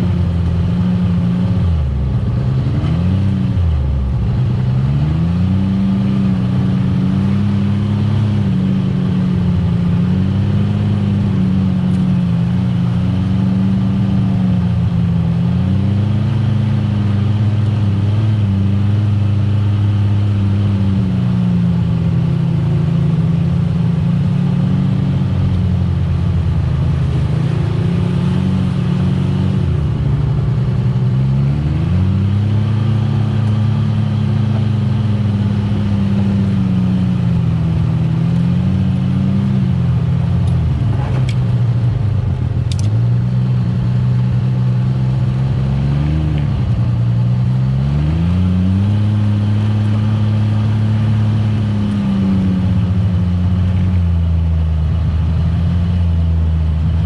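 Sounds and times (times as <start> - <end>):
utility vehicle engine revving: 0.0 - 57.0
sharp clicks: 42.6 - 43.0.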